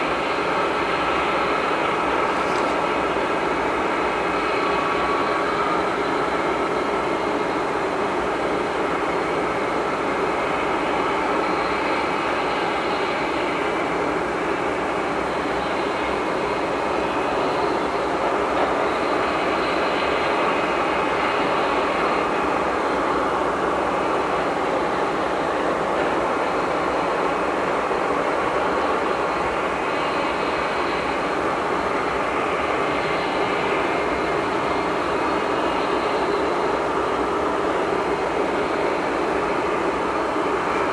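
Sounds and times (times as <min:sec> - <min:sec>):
jet engines rumbling: 0:00.0 - 0:40.9.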